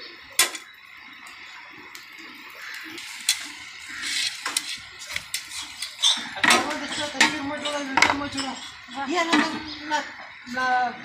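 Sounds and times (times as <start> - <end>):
flatbreads sizzling on a griddle: 0.0 - 11.0
utensils clinking on metal griddle: 2.7 - 10.2.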